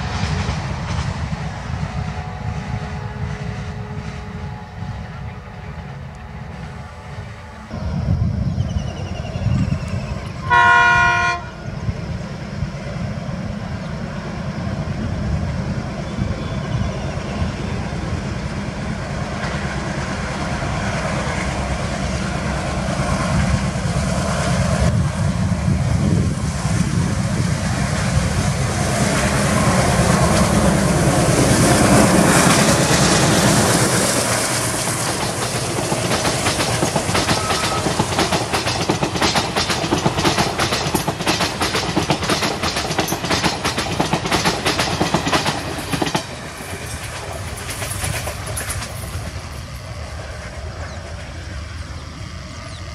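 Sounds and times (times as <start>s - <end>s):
diesel locomotive engine running hard: 0.0s - 52.9s
locomotive horn blast: 10.4s - 11.7s
train wheels clattering over rail joints: 27.8s - 49.9s.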